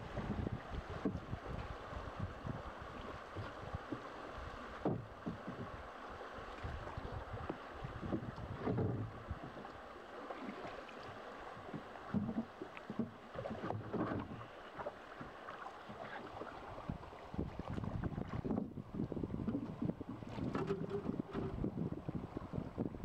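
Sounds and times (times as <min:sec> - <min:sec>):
river water rushing around a hull: 0:00.0 - 0:23.0
wooden pole knocks and splashes: 0:08.1 - 0:09.1, 0:11.7 - 0:14.4, 0:19.5 - 0:21.8.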